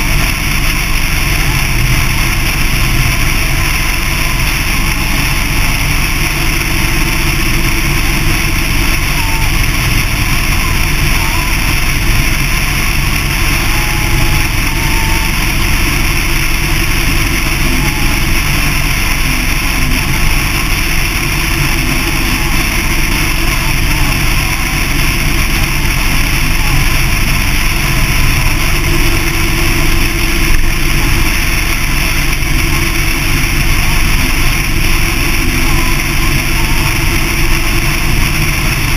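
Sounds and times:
motorcycle engine drone: 0:00.0 - 0:38.9.

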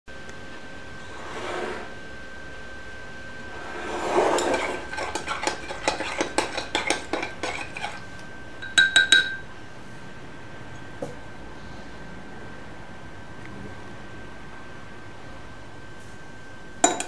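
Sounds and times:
metal spoon clinking in glass jar: 0:08.6 - 0:09.4.

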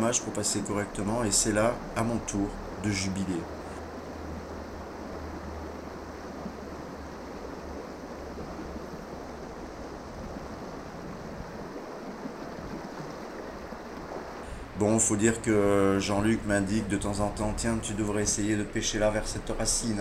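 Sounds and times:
river current rushing: 0:00.0 - 0:20.0
wind rumble on microphone: 0:00.0 - 0:20.0.

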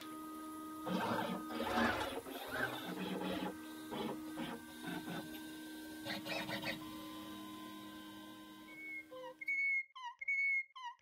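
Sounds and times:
steady machine hum: 0:00.0 - 0:09.3
stepper motors whining: 0:00.8 - 0:09.5.

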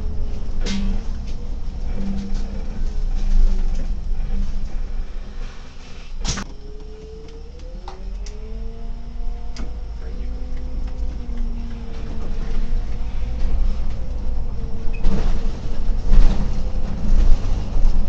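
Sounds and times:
bus engine rumble: 0:00.0 - 0:18.0
faint rising whine: 0:00.0 - 0:18.0.

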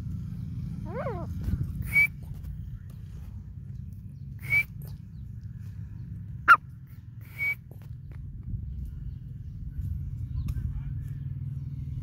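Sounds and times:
bird call notes: 0:04.2 - 0:05.4
steady low rumble: 0:07.9 - 0:12.0.

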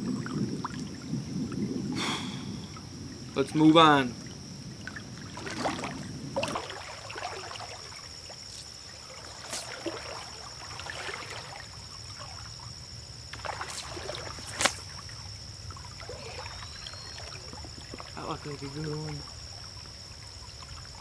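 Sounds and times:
water splashing around wading legs: 0:04.8 - 0:12.7, 0:13.3 - 0:21.0.

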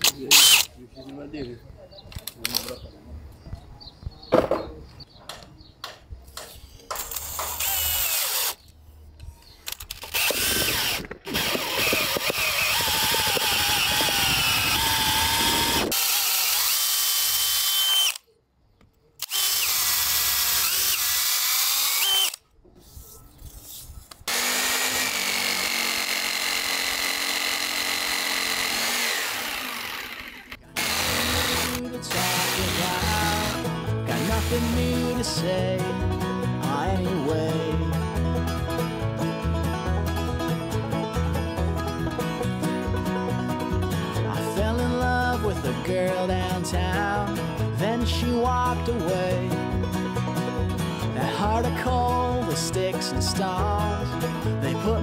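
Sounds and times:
jigsaw cutting: 0:00.0 - 0:00.7, 0:07.1 - 0:08.6, 0:10.0 - 0:18.2, 0:19.2 - 0:22.4, 0:24.3 - 0:34.8
cordless drill boring wood: 0:00.3 - 0:00.7, 0:07.1 - 0:08.6, 0:10.0 - 0:18.2, 0:19.2 - 0:22.4, 0:24.3 - 0:33.6, 0:34.2 - 0:34.8.

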